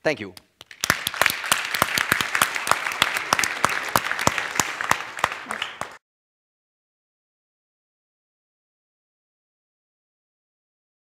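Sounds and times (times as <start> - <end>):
audience applauding: 0.6 - 6.0.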